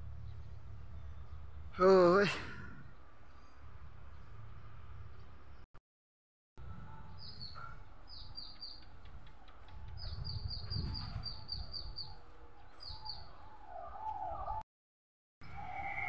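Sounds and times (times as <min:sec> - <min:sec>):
small bird chirping: 0:07.2 - 0:13.3
wavering lower-pitched bird call: 0:12.9 - 0:14.6, 0:15.4 - 0:16.0.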